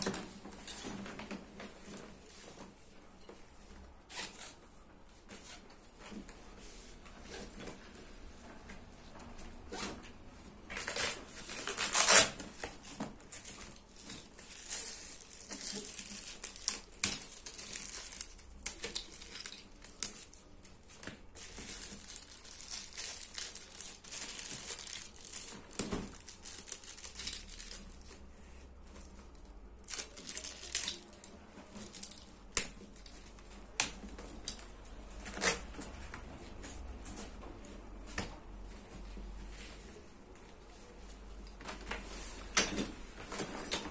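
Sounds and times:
nylon fabric crinkling and rustling: 9.7s - 36.0s.

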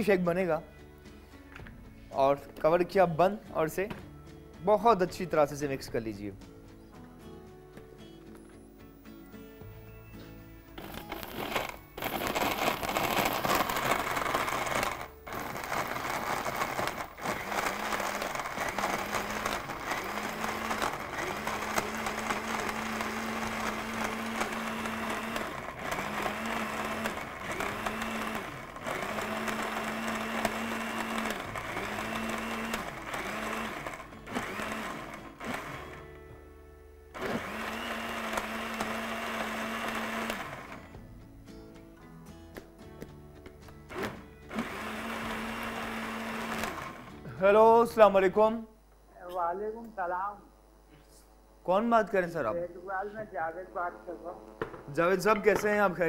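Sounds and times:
blender running: 10.8s - 36.0s, 37.1s - 41.0s, 43.9s - 47.2s.

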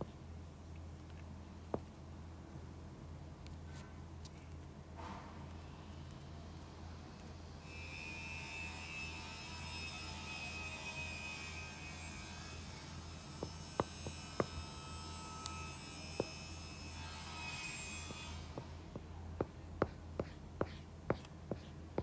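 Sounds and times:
low electrical hum with hiss: 0.0s - 7.6s.

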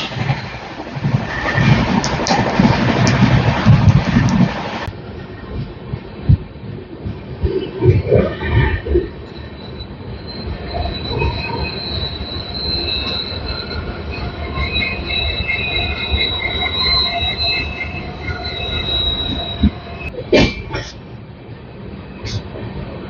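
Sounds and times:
train rumbling on rails: 0.0s - 23.0s
high wheel squeal: 8.3s - 20.2s.

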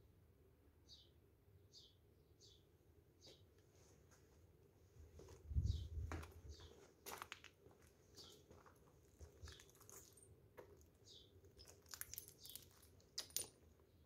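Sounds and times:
small bird chirping: 5.6s - 6.8s, 9.3s - 12.9s.

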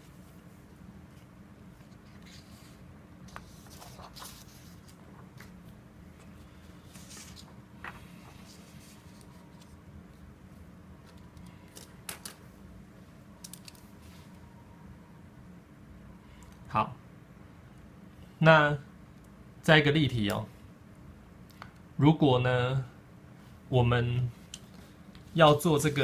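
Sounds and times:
low room hum: 0.0s - 26.0s
paper rustling: 1.1s - 9.8s.

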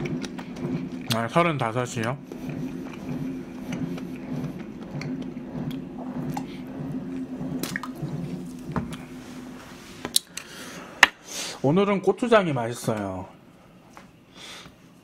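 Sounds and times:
swallowing sounds: 2.0s - 9.1s.

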